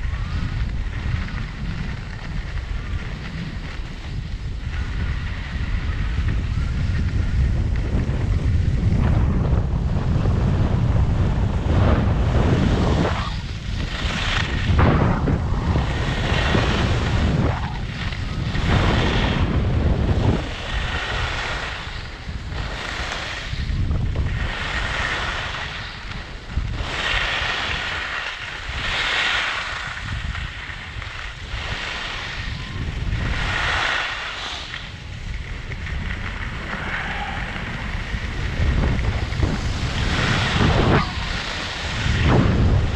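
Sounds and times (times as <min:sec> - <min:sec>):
skis carving on snow: 0:00.0 - 0:42.9
wind rushing over microphone: 0:00.0 - 0:42.9.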